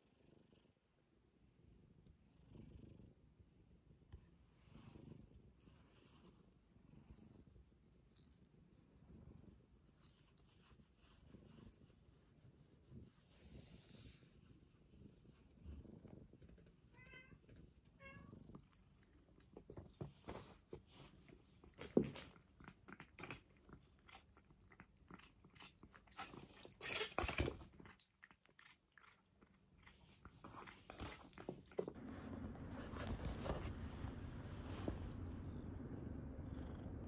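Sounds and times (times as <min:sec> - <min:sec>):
kitten chewing with crunchy clicks: 0:21.5 - 0:32.0.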